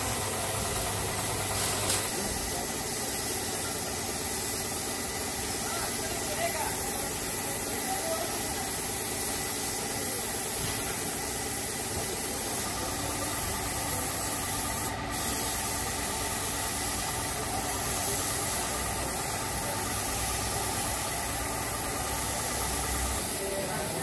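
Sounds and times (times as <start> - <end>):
steady machine hum: 0.0 - 9.0
paint spray gun hissing: 0.0 - 24.0.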